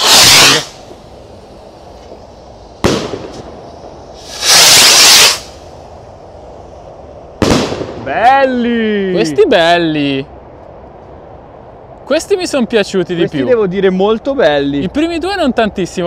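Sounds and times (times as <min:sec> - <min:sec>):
rocket launch whoosh: 0:00.0 - 0:02.0, 0:02.8 - 0:05.8, 0:07.4 - 0:08.1
firework bang: 0:00.0 - 0:05.7, 0:07.4 - 0:08.2
firework rocket bursting: 0:00.0 - 0:08.4.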